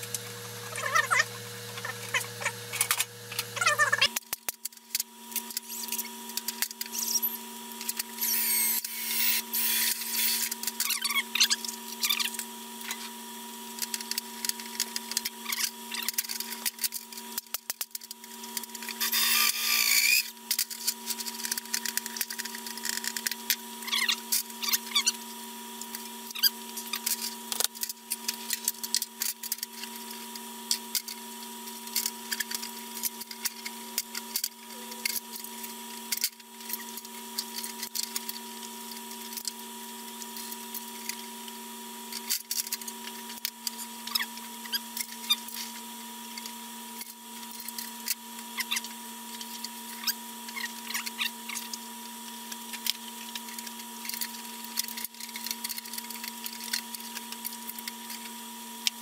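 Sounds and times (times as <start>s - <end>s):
steady hum: 0.0s - 59.0s
cordless drill running: 8.2s - 10.5s, 19.0s - 20.3s.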